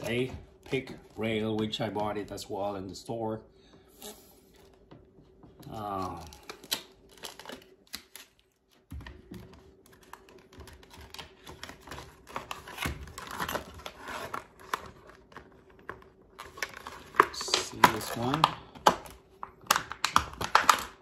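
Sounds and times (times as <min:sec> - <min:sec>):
plastic packaging crackling: 0:05.6 - 0:08.8, 0:09.6 - 0:21.0.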